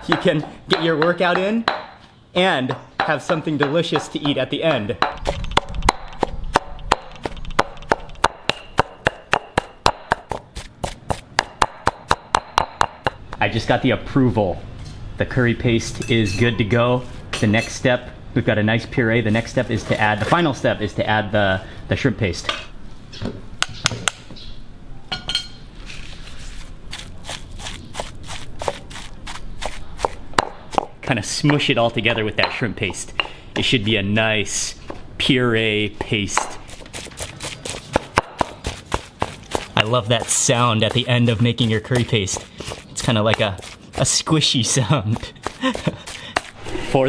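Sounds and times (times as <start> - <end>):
stone pestle pounding in mortar: 0.0 - 2.0, 2.7 - 13.2, 27.0 - 31.6, 36.4 - 46.6.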